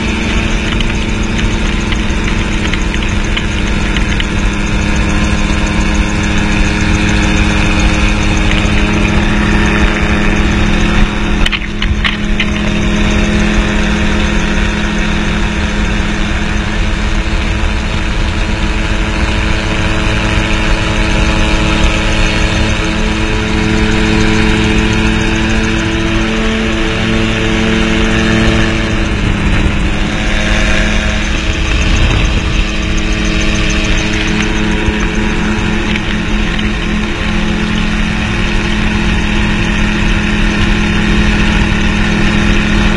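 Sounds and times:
aircraft engine and propeller drone: 0:00.0 - 0:42.9
sharp ticks: 0:00.0 - 0:42.9
wind rush: 0:00.0 - 0:42.9.

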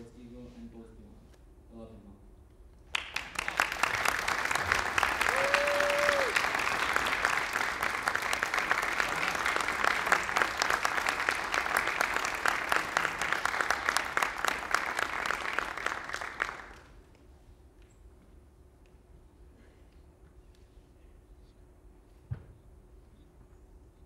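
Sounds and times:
audience clapping: 0:02.9 - 0:17.0.

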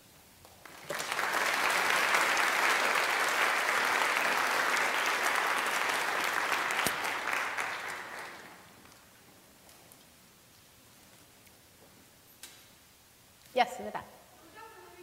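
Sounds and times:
audience applauding: 0:00.6 - 0:09.0.

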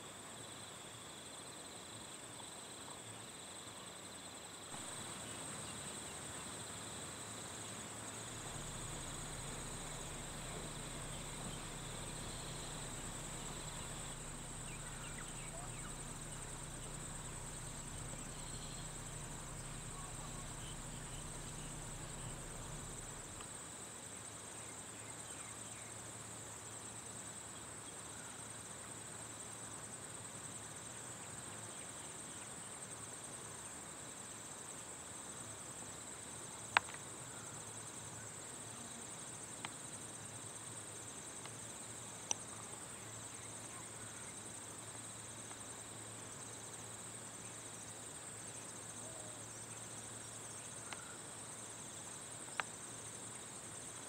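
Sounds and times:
high-pitched insect-like buzz: 0:07.0 - 0:23.4
low hum: 0:07.8 - 0:23.4.

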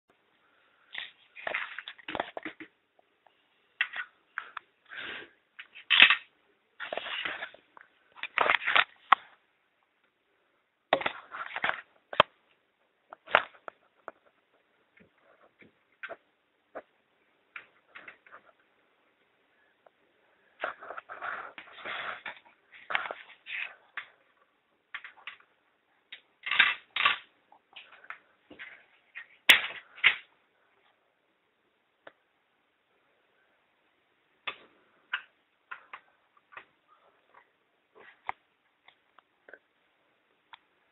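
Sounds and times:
plastic parts clicking and rattling: 0:05.6 - 0:07.6, 0:08.2 - 0:09.3, 0:26.1 - 0:30.3.

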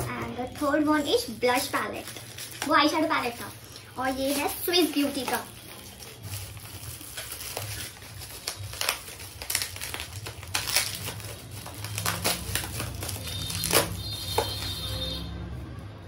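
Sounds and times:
plastic packaging crinkling: 0:00.0 - 0:15.2.

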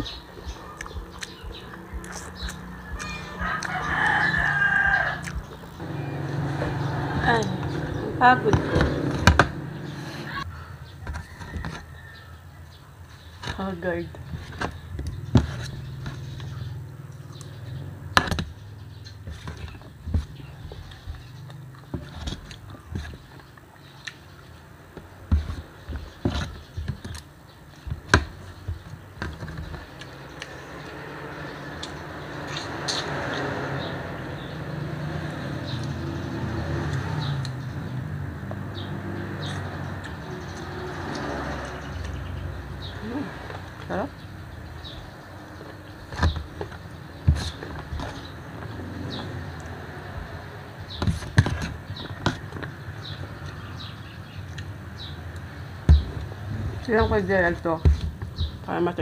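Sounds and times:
chewing: 0:00.4 - 0:04.2
person eating: 0:00.7 - 0:03.8.

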